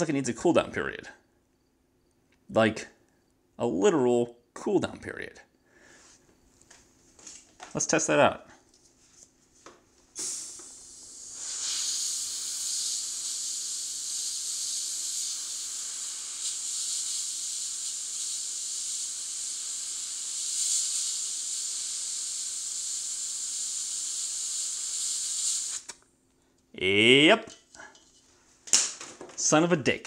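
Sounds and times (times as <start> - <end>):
air blow gun hissing: 10.2 - 26.0.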